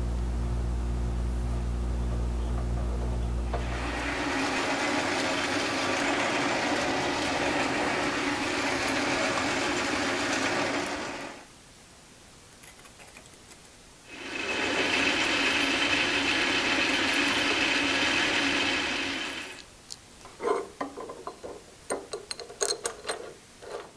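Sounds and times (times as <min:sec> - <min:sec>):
high steady whine: 0:00.0 - 0:06.0
metal lathe drilling: 0:03.5 - 0:11.4, 0:14.1 - 0:19.6.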